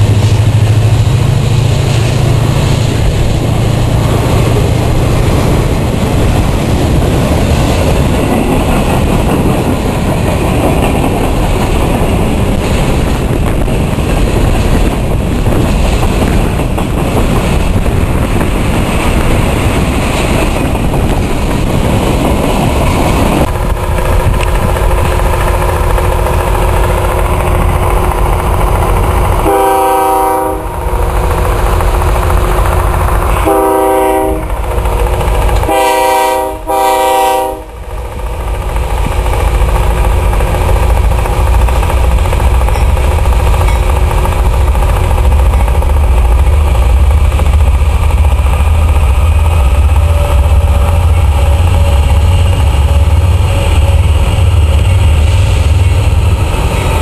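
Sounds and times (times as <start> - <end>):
freight train wheels clattering: 0.0 - 57.0
low wind rumble: 0.0 - 57.0
locomotive air horn blasts: 29.4 - 30.8, 33.4 - 34.5, 35.6 - 37.8.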